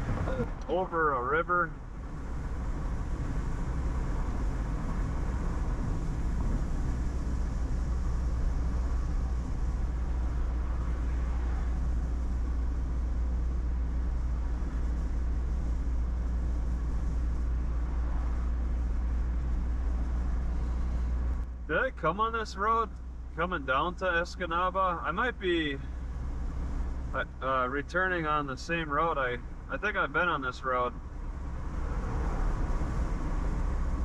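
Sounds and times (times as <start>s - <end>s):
car road and engine rumble: 0.0s - 34.0s.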